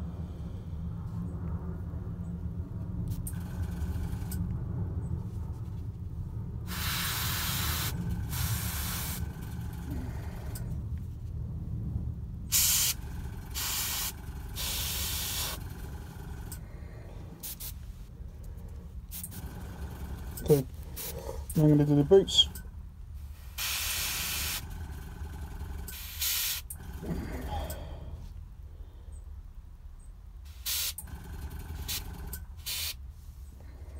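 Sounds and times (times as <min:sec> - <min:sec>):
steady low hum: 0:00.0 - 0:33.9
airbrush spraying bursts of air: 0:06.7 - 0:09.3, 0:12.5 - 0:13.0, 0:13.6 - 0:15.6, 0:17.4 - 0:17.8, 0:23.4 - 0:24.7, 0:25.9 - 0:26.7, 0:30.5 - 0:31.0, 0:32.6 - 0:33.0.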